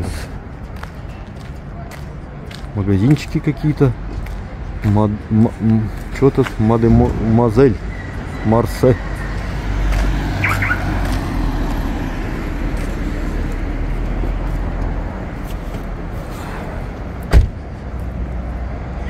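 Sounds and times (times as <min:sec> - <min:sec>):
street traffic noise: 0:00.0 - 0:19.0.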